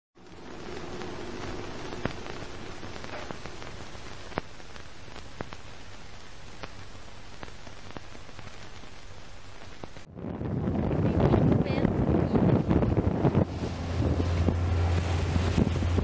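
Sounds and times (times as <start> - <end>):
film crackle clicks and pops: 0.2 - 10.1
steady hiss: 0.2 - 10.1.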